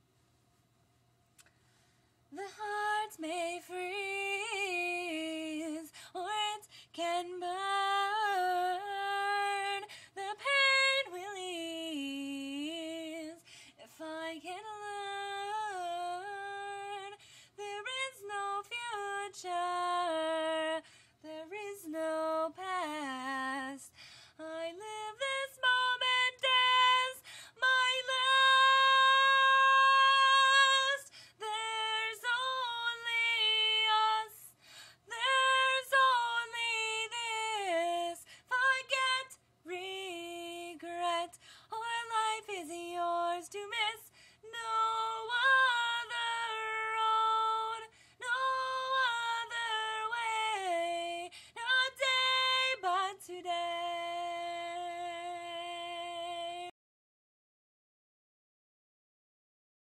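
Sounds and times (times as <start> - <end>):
woman singing a cappella: 2.3 - 56.7.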